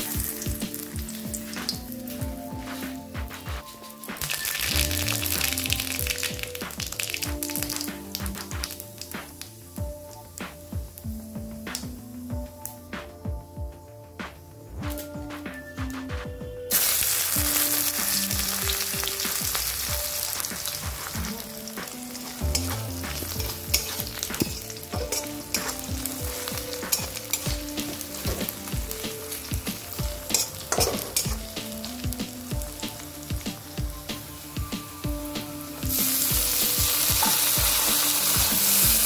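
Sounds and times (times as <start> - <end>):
onions sizzling in oil: 0.0 - 13.6, 16.7 - 39.0
metal spatula scraping wok: 22.2 - 28.6.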